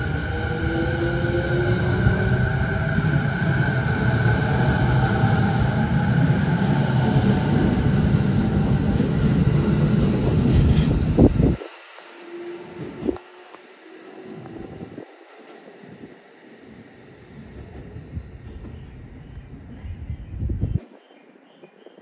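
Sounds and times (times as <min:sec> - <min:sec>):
train wheels rumbling: 0:00.0 - 0:20.8
electric train motor whine: 0:10.7 - 0:19.5.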